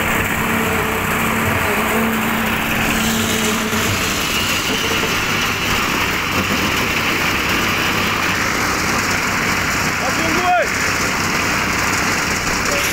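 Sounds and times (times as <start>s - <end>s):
small engine running: 0.0s - 12.9s.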